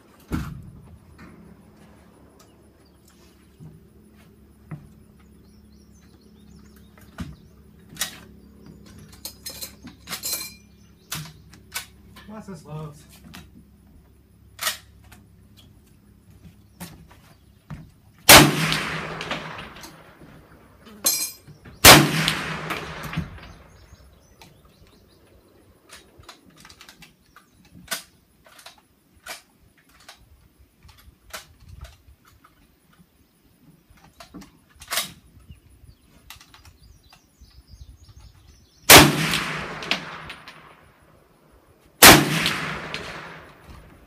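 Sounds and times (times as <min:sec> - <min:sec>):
rifle shots echoing: 0:18.2 - 0:20.8, 0:21.7 - 0:24.2, 0:38.9 - 0:41.0, 0:42.0 - 0:44.0.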